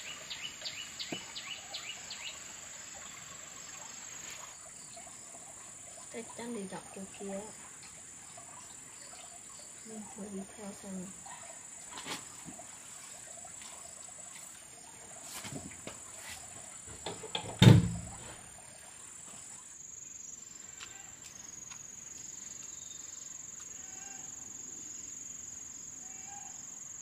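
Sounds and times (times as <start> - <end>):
high-pitched insect buzz: 20.0 - 24.7, 25.7 - 27.0.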